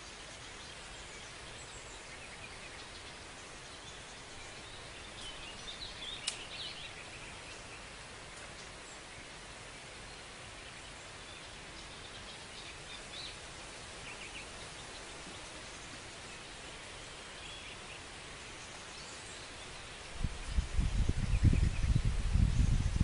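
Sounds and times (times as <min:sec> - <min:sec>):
bird chirps: 0:00.0 - 0:09.1
background hiss: 0:00.0 - 0:23.0
wind buffeting microphone: 0:20.1 - 0:23.0.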